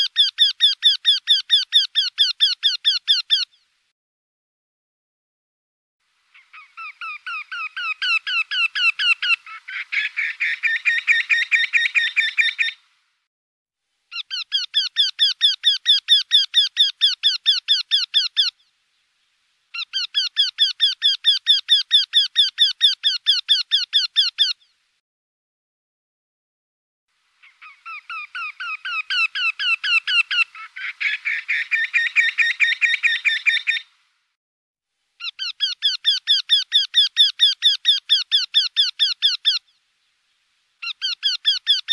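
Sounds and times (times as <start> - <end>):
bird repeated calling notes: 0.0 - 3.7, 6.3 - 12.8, 14.1 - 18.7, 19.7 - 24.8, 27.4 - 34.0, 35.2 - 39.8, 40.8 - 41.9.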